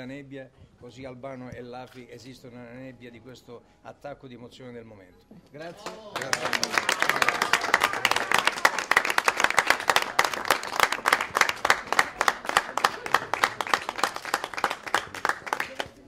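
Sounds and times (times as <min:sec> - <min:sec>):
crowd applauding: 0:05.6 - 0:16.0.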